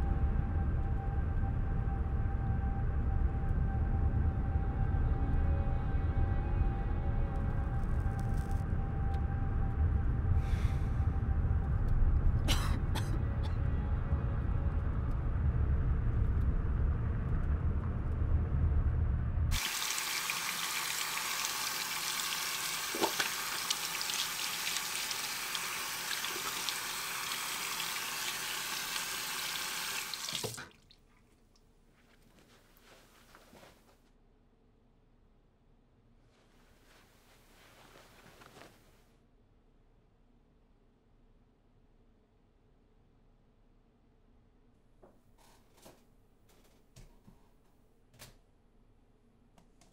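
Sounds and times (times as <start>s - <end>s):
low rumble: 0.0s - 19.6s
tap water running: 19.5s - 31.0s.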